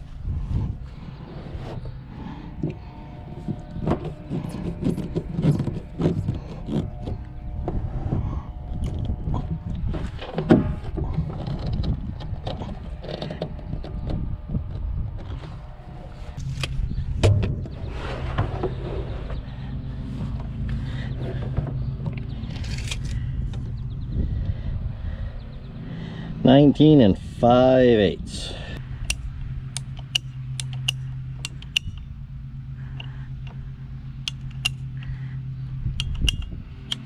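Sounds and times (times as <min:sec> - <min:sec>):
low rumble: 0:00.0 - 0:37.0.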